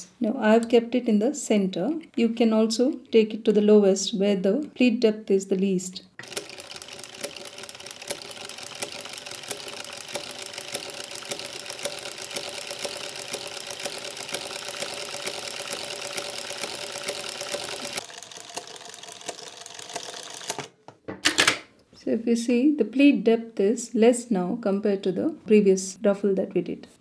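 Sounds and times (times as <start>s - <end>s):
sewing machine clattering: 6.2s - 20.7s.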